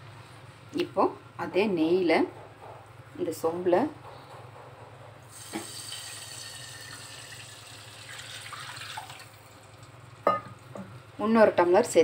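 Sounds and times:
water pouring into metal pot: 5.3s - 10.0s.

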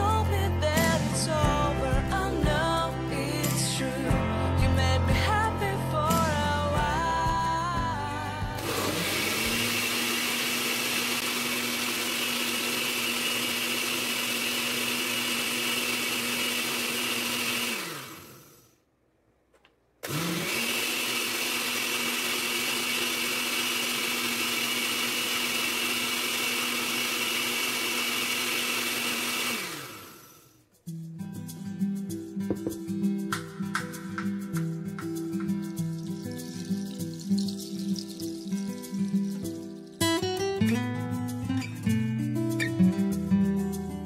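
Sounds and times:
blender motor running: 8.6s - 18.7s, 20.0s - 30.5s, 35.9s - 39.4s.

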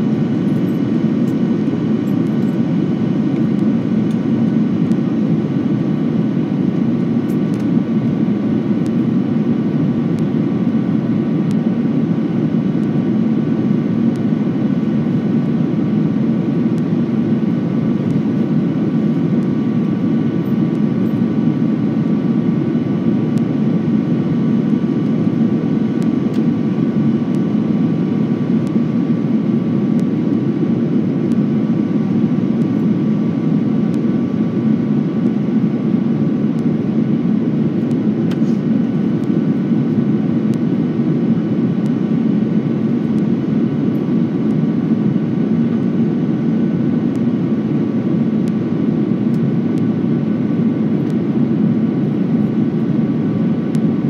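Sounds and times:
airliner cabin rush and hum: 0.0s - 54.0s
faint engine whining tones: 0.0s - 54.0s.

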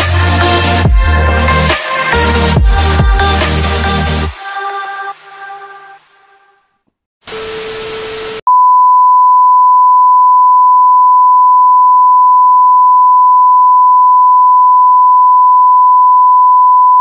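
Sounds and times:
steady test-tone beep: 8.5s - 17.0s.

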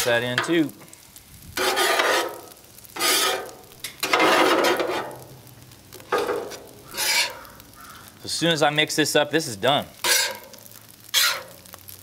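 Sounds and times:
metal spatulas scraping griddle: 1.6s - 5.2s, 6.1s - 7.6s, 10.0s - 11.7s.

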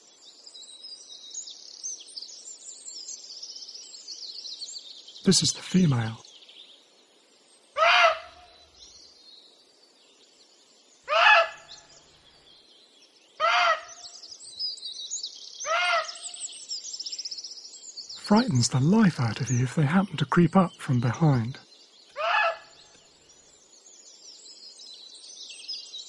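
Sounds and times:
faint birdsong: 0.0s - 26.0s
deer alarm barks: 7.8s - 8.4s, 11.1s - 11.6s, 13.4s - 13.9s, 15.7s - 16.2s, 22.2s - 22.8s.

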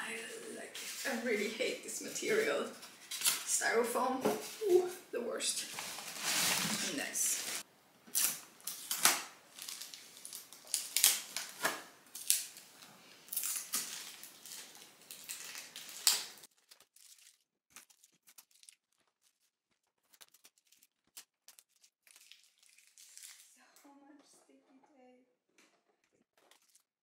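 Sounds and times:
plastic film crinkling and ripping: 5.7s - 23.6s, 26.4s - 26.9s.

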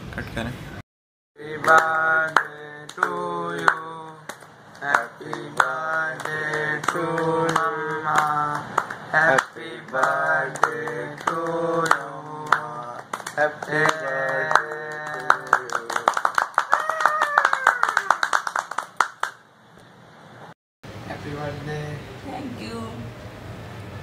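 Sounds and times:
person singing chant-like melody: 1.4s - 16.2s.

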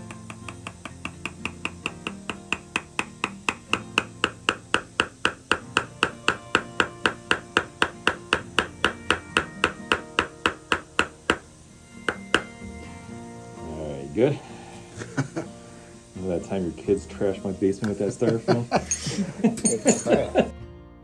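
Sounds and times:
mallet tapping steel chisel: 0.0s - 12.6s.

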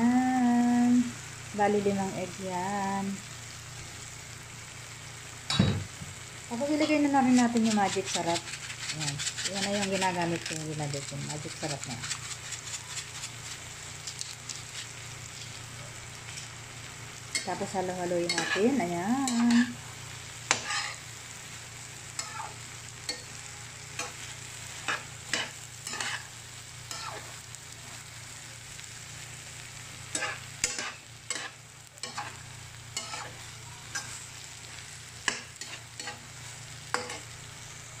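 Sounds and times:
food sizzling in a frying pan: 0.0s - 38.0s
metal spatula scraping a pan: 6.8s - 15.7s, 18.2s - 19.8s, 20.5s - 21.1s, 22.2s - 27.4s, 30.1s - 34.4s, 35.2s - 37.4s.

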